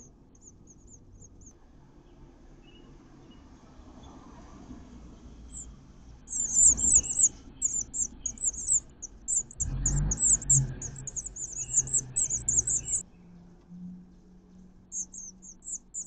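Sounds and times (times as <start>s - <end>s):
nestlings chirping: 0.0s - 1.5s, 5.5s - 13.0s, 14.9s - 16.0s.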